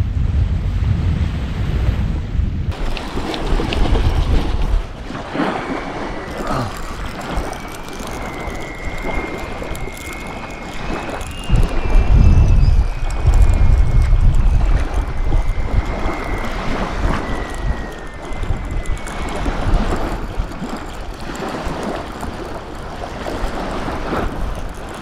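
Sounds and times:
wind buffeting microphone: 0:00.0 - 0:25.0
small waves lapping: 0:02.7 - 0:25.0
faint high whine: 0:04.8 - 0:25.0.

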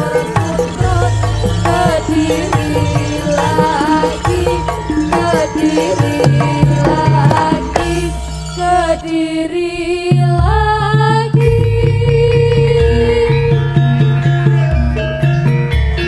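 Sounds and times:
steady drum beat: 0:00.0 - 0:09.3, 0:10.1 - 0:15.7
low sustained tones: 0:00.0 - 0:10.5
wavering sung melody: 0:00.0 - 0:16.0.

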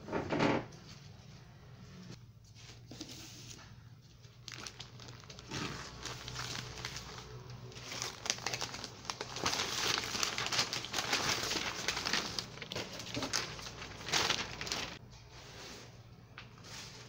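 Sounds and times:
newspaper rustling: 0:02.9 - 0:15.0.

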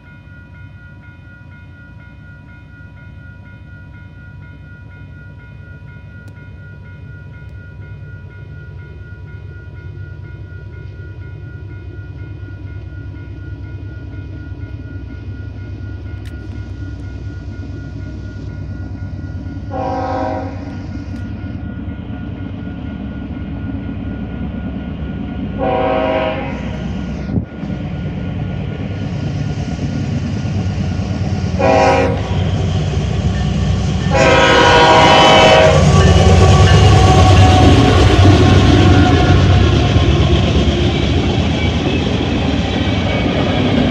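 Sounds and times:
crossing signal bell ringing: 0:00.0 - 0:43.9
locomotive engine and wheel rumble: 0:00.0 - 0:43.9
locomotive horn: 0:19.7 - 0:20.7, 0:25.6 - 0:26.7, 0:31.6 - 0:32.4, 0:34.1 - 0:37.8.

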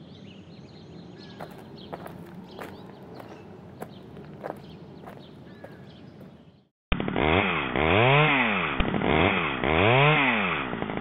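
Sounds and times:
chainsaw revving: 0:06.9 - 0:11.0.

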